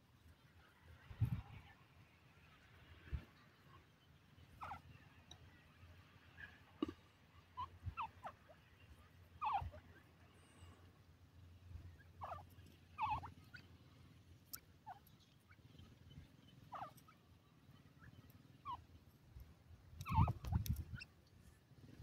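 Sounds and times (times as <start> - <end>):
bird chirping calls: 9.4 - 10.8, 11.8 - 13.9, 14.5 - 19.2, 20.0 - 21.2.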